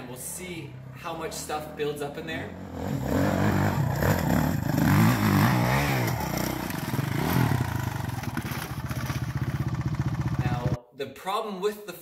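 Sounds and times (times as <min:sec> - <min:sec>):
dirt bike engine revving: 0:02.4 - 0:10.8.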